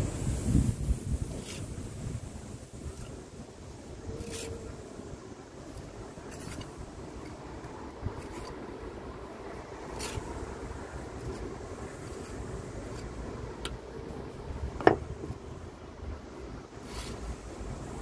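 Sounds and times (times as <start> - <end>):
steady low rumble: 0.0 - 18.0
trowel scraping mortar: 2.8 - 4.9, 5.6 - 8.8, 9.9 - 10.4, 11.1 - 13.3, 16.8 - 17.4.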